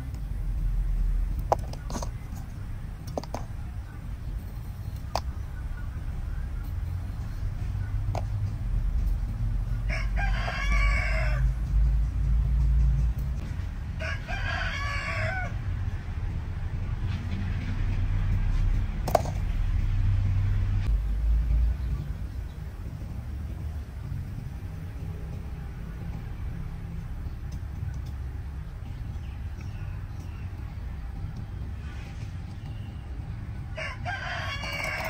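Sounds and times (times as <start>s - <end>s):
rooster crowing: 9.8s - 11.6s, 13.9s - 15.6s, 33.7s - 35.0s.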